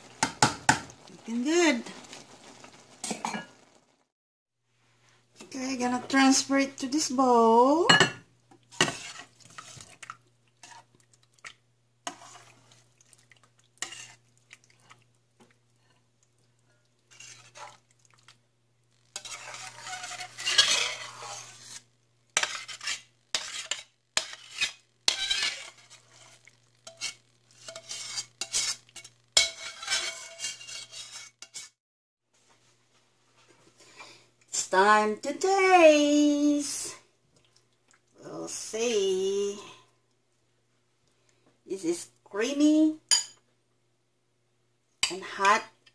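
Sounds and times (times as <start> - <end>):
utensil scraping metal pan: 8.7 - 9.9, 12.0 - 12.6, 13.8 - 14.2, 17.1 - 17.8, 19.2 - 31.8.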